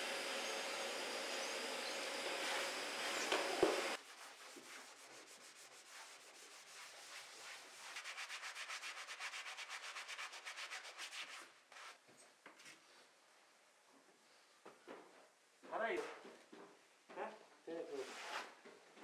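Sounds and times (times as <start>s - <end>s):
scrub brush scrubbing floor: 2.3s - 12.0s.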